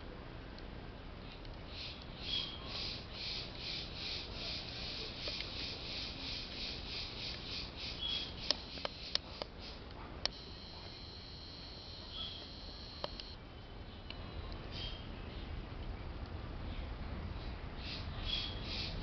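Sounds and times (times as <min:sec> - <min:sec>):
insect chirping: 0:01.7 - 0:09.5, 0:10.3 - 0:13.4
sharp clicks: 0:08.4 - 0:09.5, 0:12.4 - 0:13.4.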